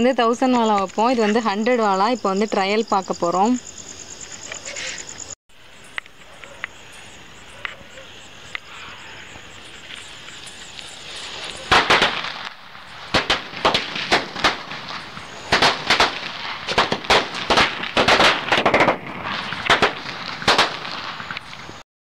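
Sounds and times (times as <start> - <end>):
hissing fuse: 8.4 - 21.8
firecrackers banging: 9.4 - 21.8.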